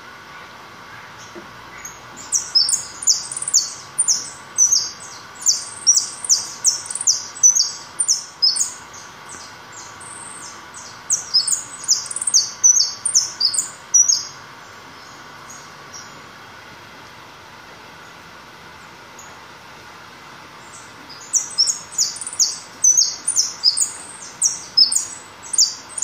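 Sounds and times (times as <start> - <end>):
finch singing: 1.2 - 14.4, 20.6 - 26.0.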